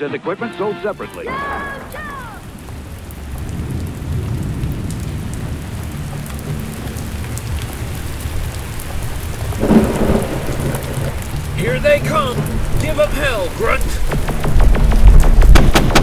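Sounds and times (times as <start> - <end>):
heavy rain: 0.4 - 16.0
thunder rumbling: 1.0 - 16.0
thunder crack: 1.2 - 6.6, 9.4 - 16.0.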